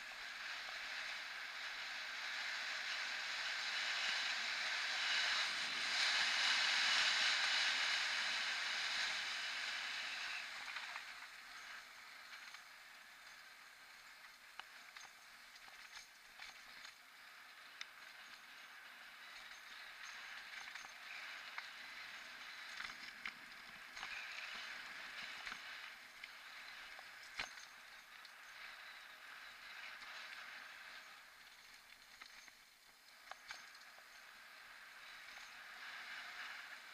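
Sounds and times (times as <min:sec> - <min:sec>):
bike tyres and wind rushing: 0:00.0 - 0:36.9
small clicks and rattles: 0:10.6 - 0:36.9.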